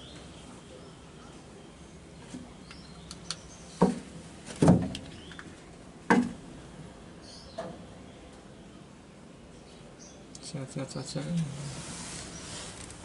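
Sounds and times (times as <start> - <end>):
dull knocks and clunks: 3.8 - 5.1.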